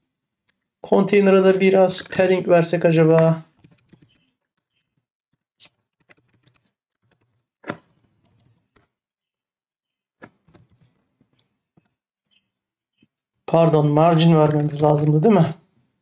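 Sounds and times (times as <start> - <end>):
keyboard typing: 3.0 - 9.0, 10.2 - 15.5.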